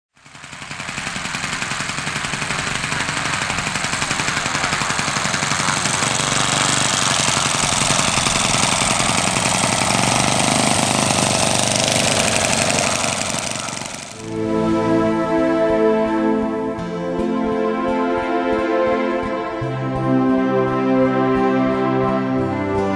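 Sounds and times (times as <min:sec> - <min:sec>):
model plane engine running: 0:00.1 - 0:18.2
propeller noise: 0:00.1 - 0:22.9.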